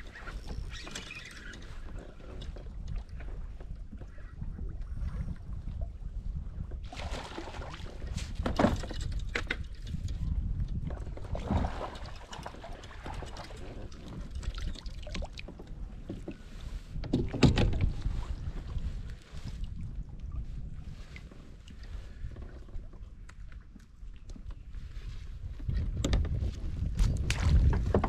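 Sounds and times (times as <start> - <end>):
wind on microphone: 0.0 - 28.0.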